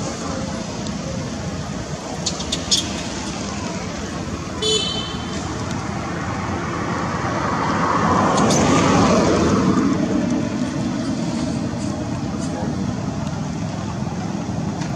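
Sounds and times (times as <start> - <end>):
road traffic rush: 0.0 - 14.9
vehicle passing: 2.3 - 14.1.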